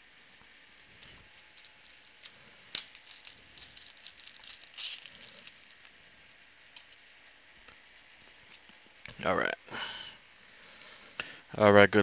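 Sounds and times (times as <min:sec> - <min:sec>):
packaging crinkling and rustling: 0:00.9 - 0:05.9.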